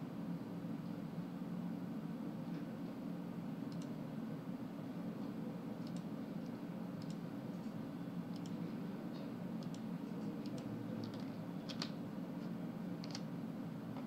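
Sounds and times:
steady low hum: 0.0 - 14.0
typing on a keyboard: 10.4 - 12.0, 13.0 - 13.2.

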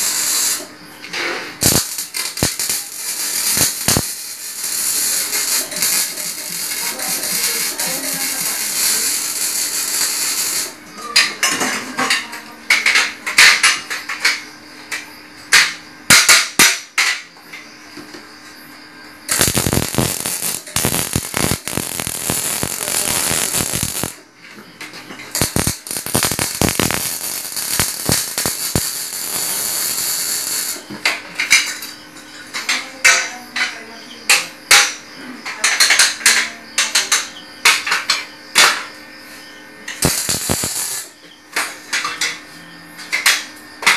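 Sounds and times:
arc welding crackling sizzle: 0.0 - 11.0, 19.2 - 31.9, 39.9 - 42.2.

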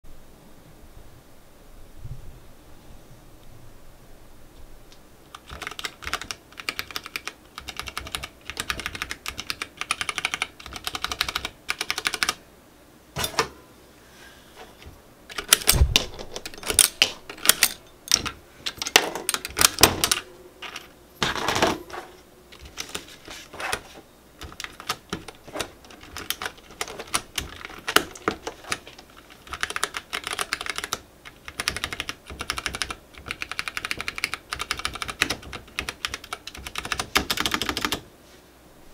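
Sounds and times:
keycaps clacking and knocking: 5.3 - 12.4, 15.3 - 38.0
mechanical keyboard typing: 5.3 - 12.4, 15.3 - 21.8, 22.5 - 23.1, 24.4 - 38.0.

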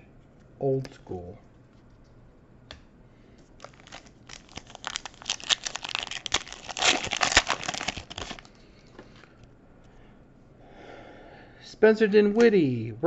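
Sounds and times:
foil wrapper tearing and crinkling: 3.6 - 8.6.

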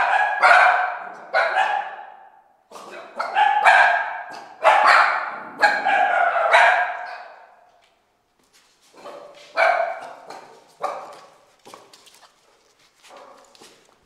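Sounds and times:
dog barking with echo: 0.0 - 7.7, 9.0 - 11.4.

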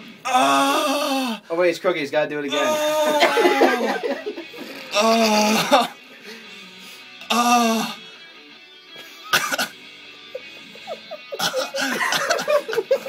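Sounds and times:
faint music: 0.0 - 13.0
man groaning in pain: 0.2 - 1.4, 2.5 - 4.0, 4.8 - 6.0, 7.2 - 8.0
short strained vocal pulses: 0.2 - 1.5, 2.5 - 3.4, 4.6 - 5.9, 7.2 - 8.0.

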